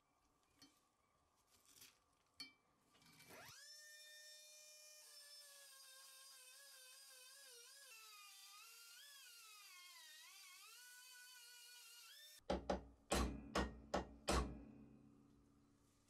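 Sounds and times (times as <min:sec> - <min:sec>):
rotary tool grinding metal: 0:05.0 - 0:12.4
hammer striking steel punch: 0:12.5 - 0:14.7.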